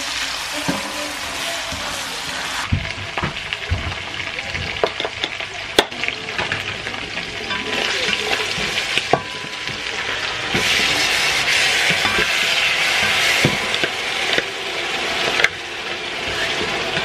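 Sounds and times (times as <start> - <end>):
oil sizzling in frying pan: 0.0 - 17.0.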